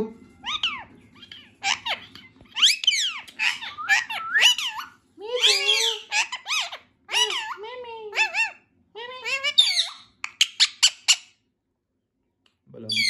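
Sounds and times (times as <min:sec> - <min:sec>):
parakeet chattering: 0:00.4 - 0:08.6, 0:09.2 - 0:11.4.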